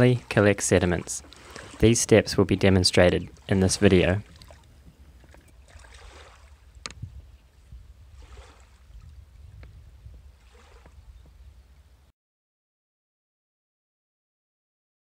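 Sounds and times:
river water splashing: 0.0s - 6.9s, 7.5s - 9.2s, 10.3s - 11.0s
wind rumble on microphone: 3.7s - 12.1s.

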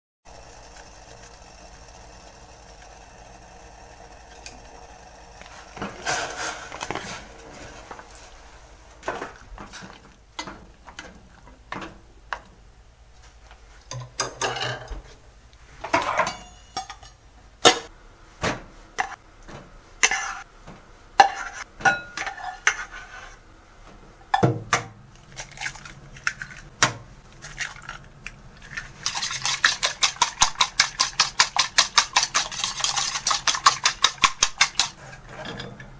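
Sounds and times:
utensils clinking on metal pot: 16.0s - 17.9s
eggs beaten in bowl: 27.4s - 35.0s.

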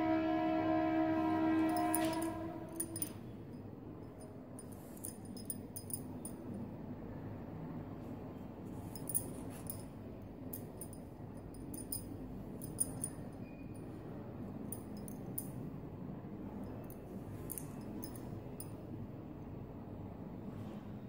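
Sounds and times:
low background noise: 0.0s - 21.0s
handling knitted fabric: 8.0s - 10.8s.

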